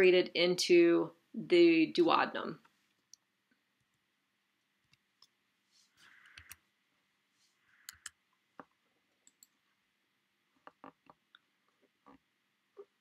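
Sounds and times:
computer mouse clicking: 0:06.2 - 0:06.6, 0:07.8 - 0:08.2.

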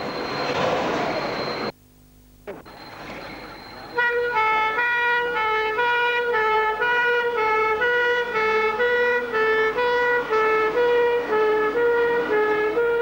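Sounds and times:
engine rumble: 0:00.0 - 0:13.0
fire engine two-tone horns: 0:03.8 - 0:13.0.

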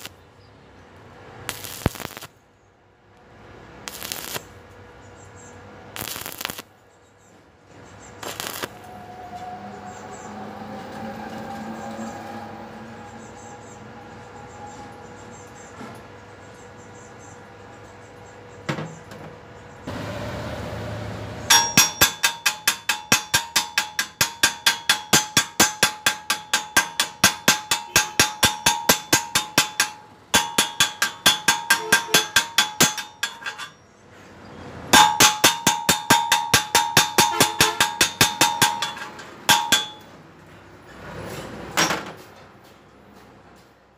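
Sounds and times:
chipping hammer striking steel: 0:21.5 - 0:33.8, 0:34.9 - 0:40.2.

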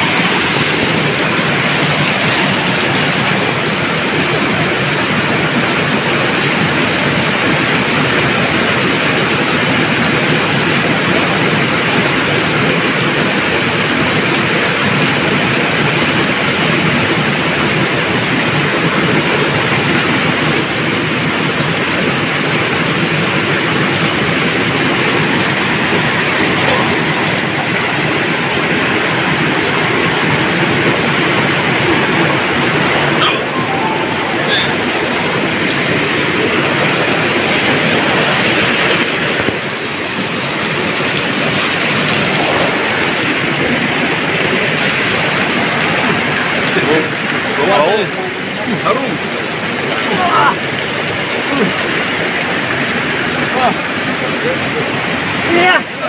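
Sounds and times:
loud rushing noise: 0:00.0 - 0:12.2, 0:31.3 - 0:46.7.

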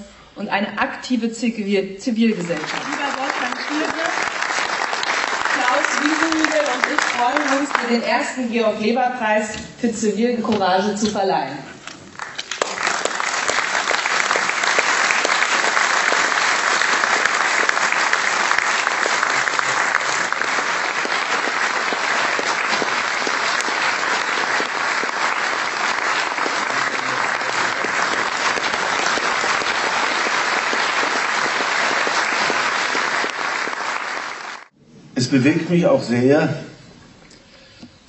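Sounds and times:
audience applauding: 0:02.3 - 0:08.2, 0:12.1 - 0:34.8.

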